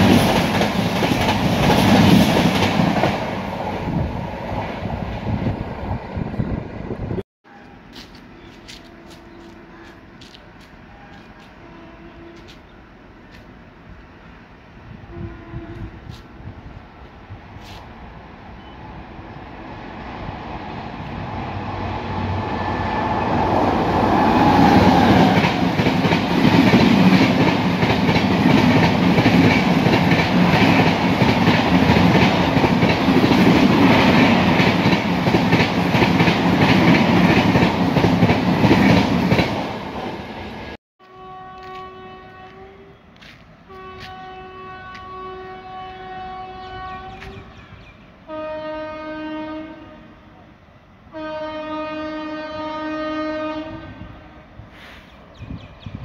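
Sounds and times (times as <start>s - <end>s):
train passing at high speed: 0.0s - 56.0s
train horn blasts: 8.6s - 10.0s, 10.9s - 12.6s, 14.9s - 16.2s, 41.0s - 47.5s, 48.3s - 50.4s, 51.1s - 54.5s.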